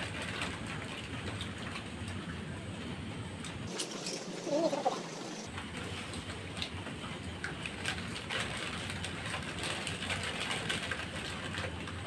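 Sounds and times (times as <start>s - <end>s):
plastic chip packets crinkling: 7.4s - 12.0s.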